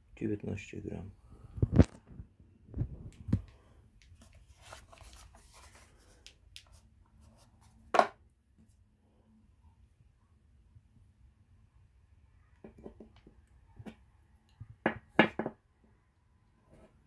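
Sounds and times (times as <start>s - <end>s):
bottle knocking on tabletop: 12.6s - 13.1s, 14.8s - 15.6s.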